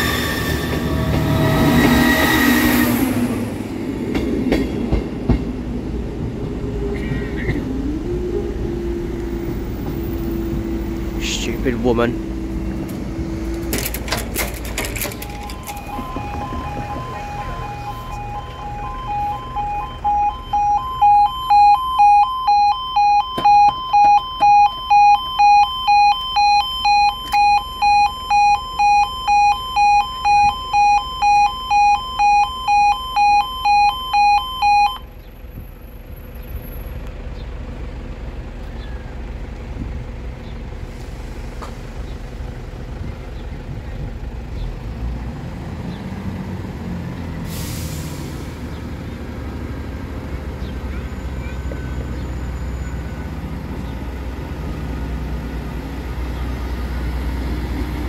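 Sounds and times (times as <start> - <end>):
level crossing two-tone alarm: 15.0 - 35.1.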